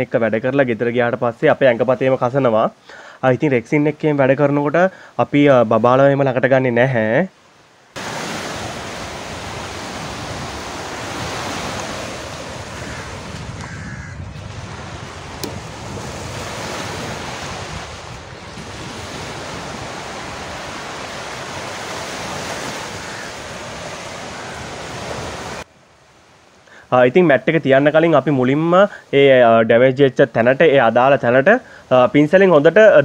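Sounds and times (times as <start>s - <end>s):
small waves breaking on sand: 7.4s - 13.7s, 14.3s - 26.5s
wind buffeting microphone: 8.2s - 25.6s.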